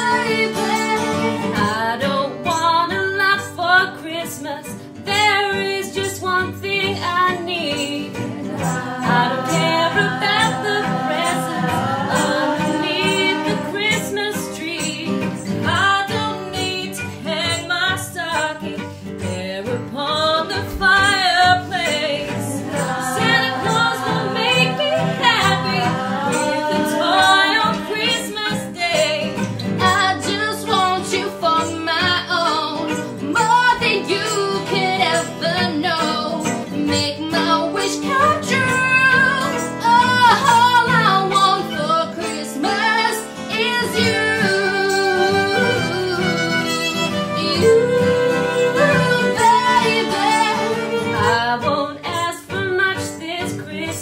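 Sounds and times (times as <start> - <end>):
acoustic guitar: 0.0 - 54.0
violin: 0.0 - 54.0
group singing: 8.2 - 14.5, 21.5 - 30.0, 47.5 - 51.7.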